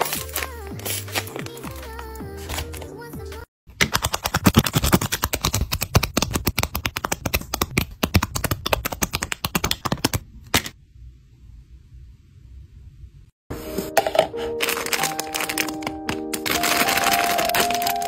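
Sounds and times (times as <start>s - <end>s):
sticker sheets crackling and clicking: 3.8s - 10.7s, 14.6s - 18.0s.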